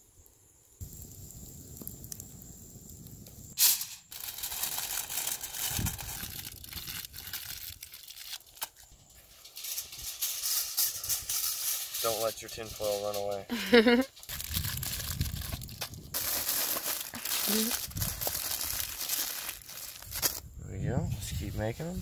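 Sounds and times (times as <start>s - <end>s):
foil ripping off roll: 3.6s - 13.3s, 13.9s - 20.4s
foil crinkling: 3.6s - 20.5s.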